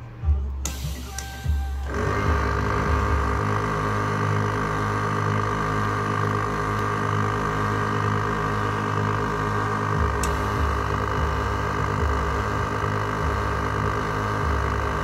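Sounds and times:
air compressor running: 0:00.6 - 0:15.0.

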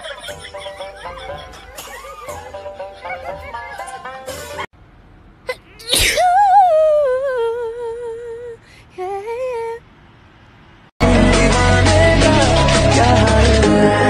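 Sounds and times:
person sneezing: 0:05.5 - 0:06.3.

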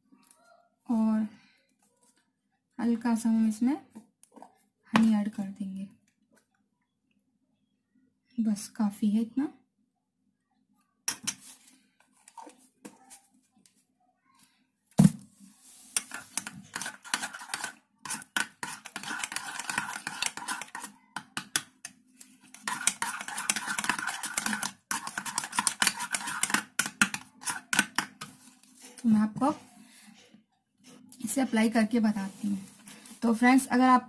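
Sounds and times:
spoon stirring in bowl: 0:15.6 - 0:29.0.

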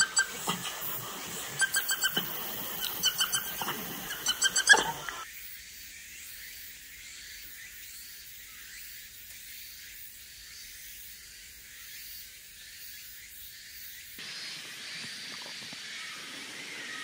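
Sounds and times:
short high-pitched animal calls: 0:00.0 - 0:05.2.

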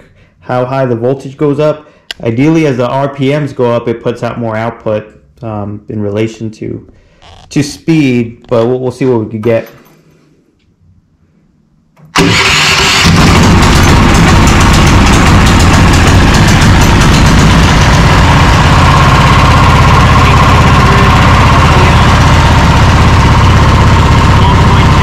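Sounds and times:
engine starter cranking: 0:12.0 - 0:24.8
engine running loud: 0:12.2 - 0:25.0.

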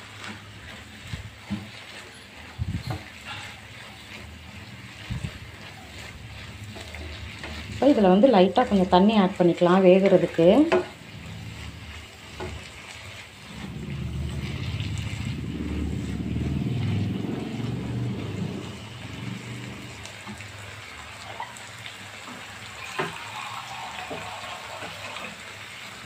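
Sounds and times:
wooden spatula stirring in pan: 0:00.0 - 0:26.0
loud low rumble: 0:11.0 - 0:12.7, 0:13.3 - 0:20.8.

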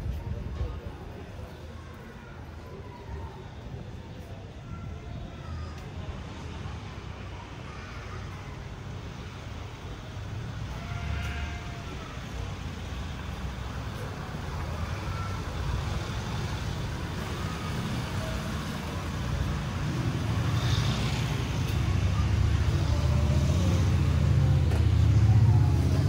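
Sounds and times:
street traffic rumble: 0:00.0 - 0:26.0.

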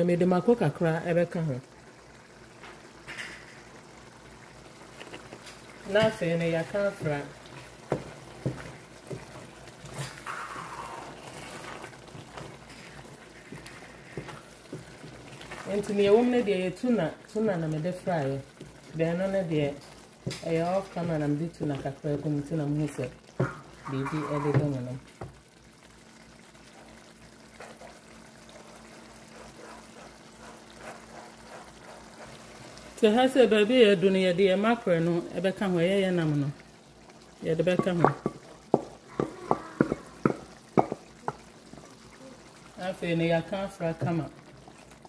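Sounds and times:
tomatoes sizzling and bubbling: 0:00.0 - 0:45.0
wooden spatula knocking on pan: 0:07.8 - 0:09.4, 0:37.7 - 0:41.4.

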